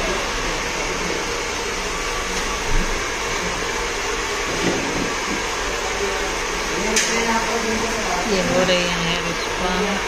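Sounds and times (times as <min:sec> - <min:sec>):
hair dryer blowing: 0:00.0 - 0:10.0.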